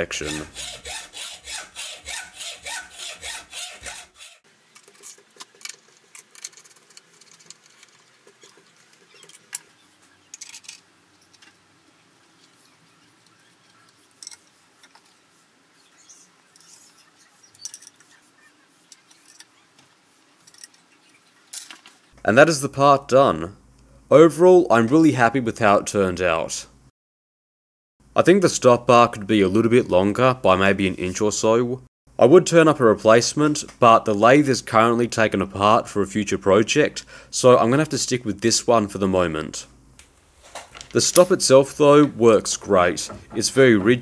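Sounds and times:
hacksaw cutting steel: 0:00.0 - 0:04.5.

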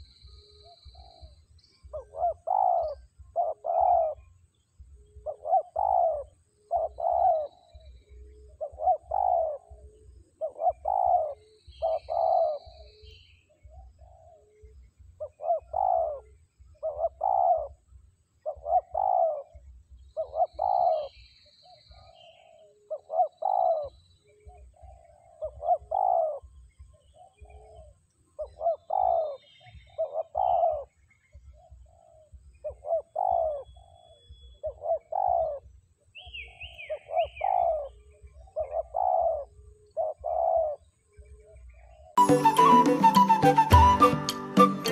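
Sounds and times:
faint high bird chirps: 0:00.0 - 0:44.9
dove cooing: 0:01.9 - 0:04.2, 0:05.1 - 0:12.9, 0:13.7 - 0:17.8, 0:18.4 - 0:19.6, 0:20.2 - 0:21.2, 0:21.9 - 0:30.9, 0:31.5 - 0:35.7, 0:36.4 - 0:44.9.

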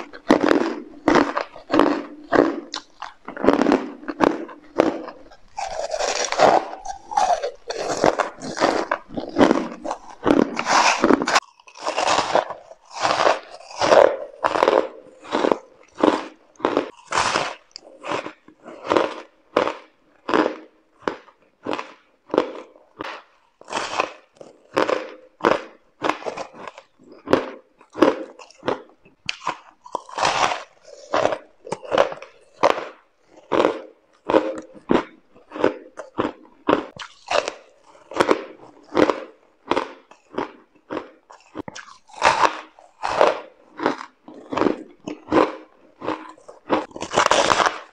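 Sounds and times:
ice being chewed: 0:00.0 - 0:47.9.

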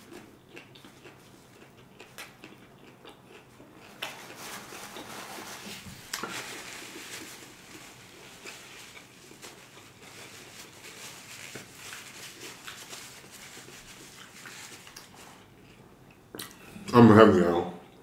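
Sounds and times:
chewing with wet mouth clicks: 0:00.0 - 0:04.3
paper napkin rustling: 0:03.9 - 0:15.5.

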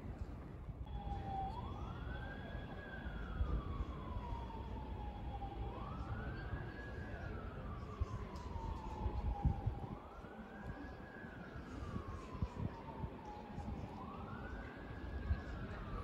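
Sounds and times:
emergency siren wailing: 0:00.9 - 0:16.0.

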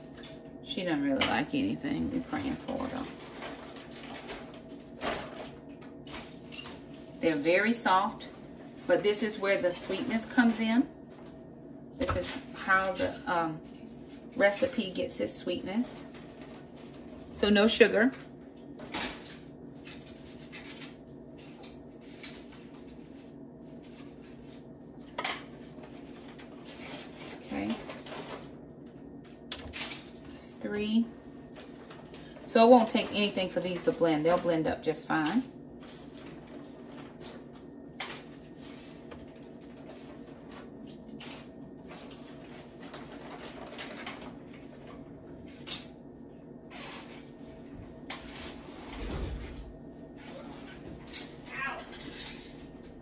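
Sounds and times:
steady low hum: 0:00.0 - 0:53.0.

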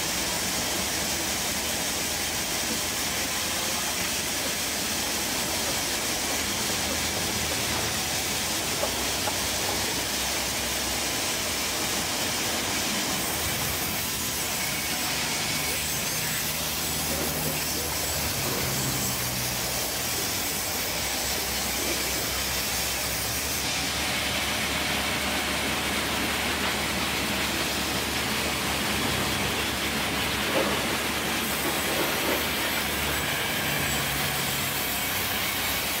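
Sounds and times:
band saw blade hissing through wood: 0:01.8 - 0:24.6.

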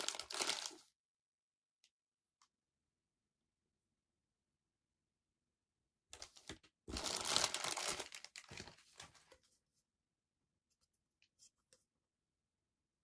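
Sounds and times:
plastic bag crinkling: 0:00.0 - 0:00.8, 0:06.9 - 0:09.2.

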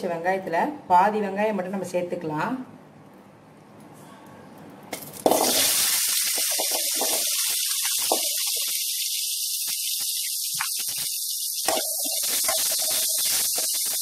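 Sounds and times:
frying hiss: 0:05.0 - 0:14.0
onions sizzling in hot oil: 0:05.2 - 0:14.0.

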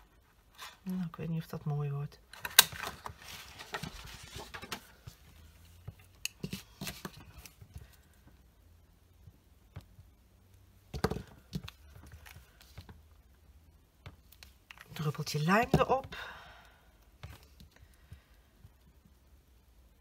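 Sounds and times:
paper rustling: 0:02.4 - 0:07.9.

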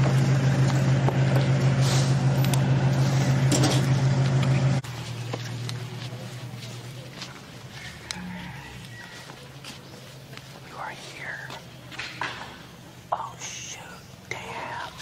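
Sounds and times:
small motorbike engine humming: 0:00.0 - 0:09.4.

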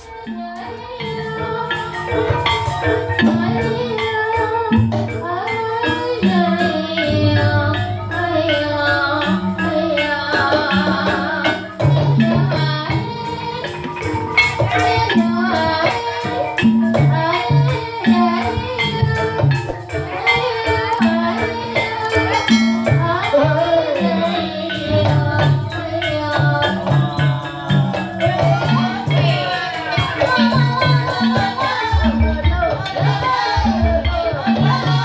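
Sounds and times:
drum strokes: 0:00.0 - 0:35.0
metallophones ringing melody: 0:00.0 - 0:35.0
woman singing into a microphone: 0:00.0 - 0:35.0
gong: 0:22.0 - 0:23.7.

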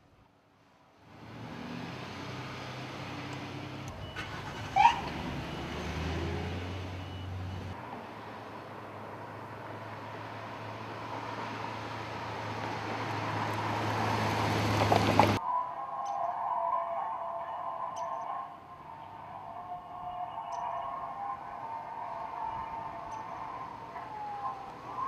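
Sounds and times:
car engine hum: 0:01.0 - 0:15.4.

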